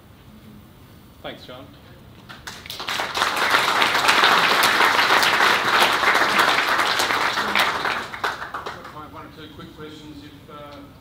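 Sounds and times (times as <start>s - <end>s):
audience applauding: 2.3s - 9.2s.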